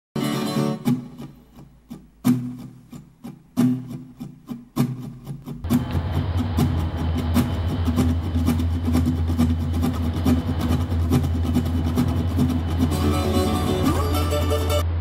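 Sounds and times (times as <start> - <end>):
diesel locomotive rumble: 5.7 - 15.0
struck chords ringing: 5.7 - 15.0.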